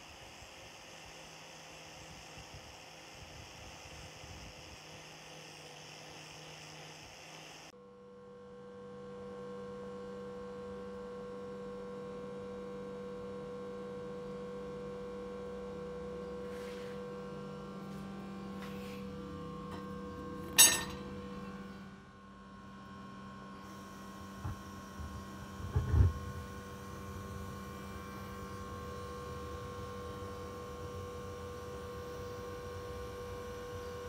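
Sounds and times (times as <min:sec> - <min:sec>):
steady electrical hum: 0:09.2 - 0:34.0.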